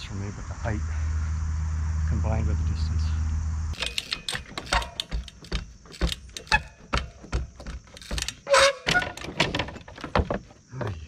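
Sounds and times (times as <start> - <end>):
chain and frame rattle: 3.8 - 10.5
bike hopping on wooden pallets: 3.8 - 11.0.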